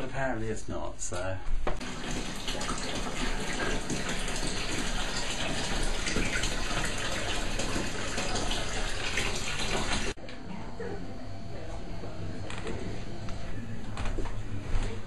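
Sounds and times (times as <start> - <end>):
tap water gushing into bathtub: 1.7 - 10.2.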